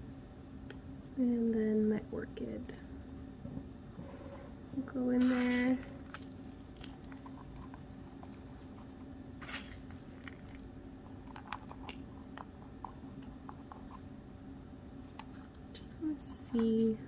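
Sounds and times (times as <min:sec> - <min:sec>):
faint low hum: 0:00.0 - 0:17.0
bark chips crackling in a plastic pot: 0:05.1 - 0:14.0.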